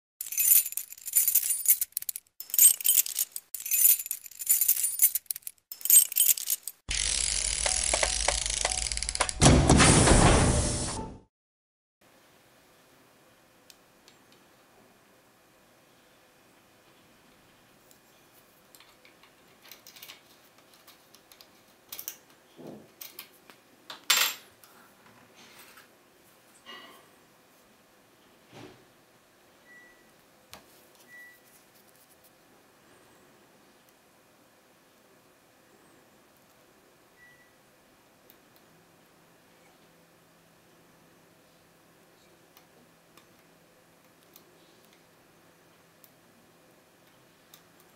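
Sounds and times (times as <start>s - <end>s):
key sliding in a lock cylinder: 0.2s - 6.8s
bright metallic jingling: 0.2s - 9.1s.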